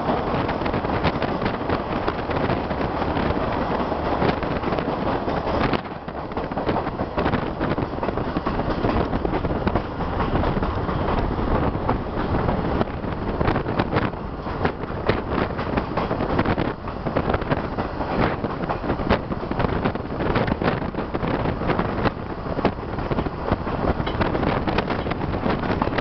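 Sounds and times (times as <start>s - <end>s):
train rumbling: 0.0s - 26.0s
wind buffeting microphone: 0.0s - 26.0s
clicks and rattles from wheels: 13.8s - 26.0s.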